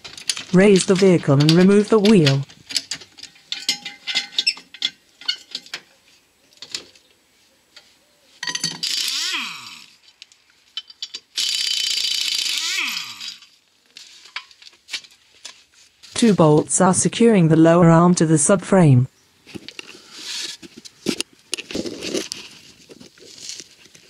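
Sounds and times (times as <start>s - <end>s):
pneumatic impact wrench: 8.8s - 10.0s, 11.3s - 13.6s.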